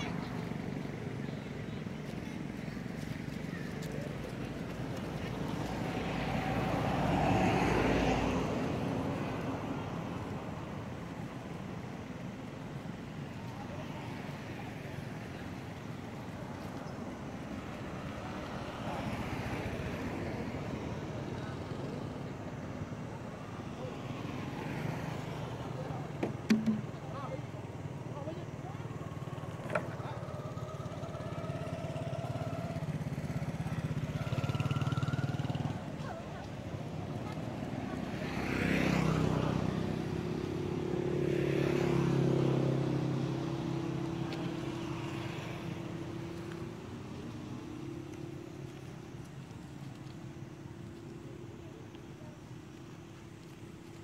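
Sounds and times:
engine passing by: 0.0s - 54.0s
small motorcycle engine running: 29.2s - 36.3s.

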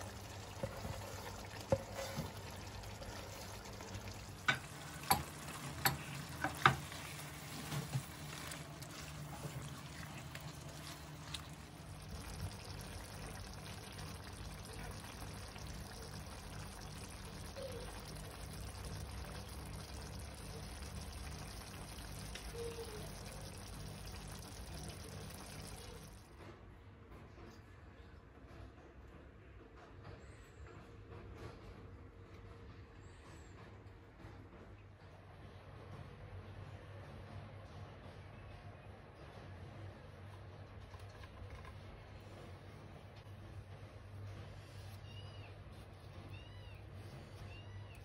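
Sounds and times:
sauce sizzling and bubbling in pan: 0.0s - 26.3s.

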